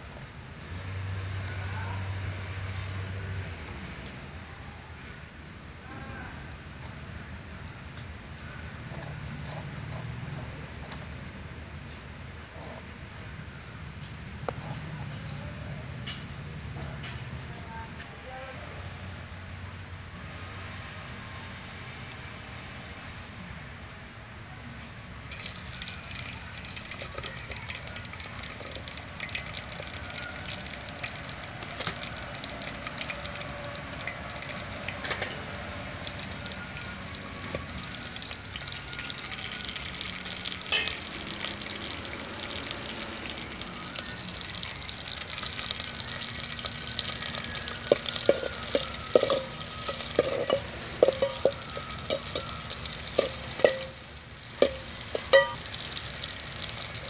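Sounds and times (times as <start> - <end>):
food sizzling in hot oil: 25.2 - 57.0
ladle stirring and knocking pot: 25.3 - 36.3, 46.7 - 57.0.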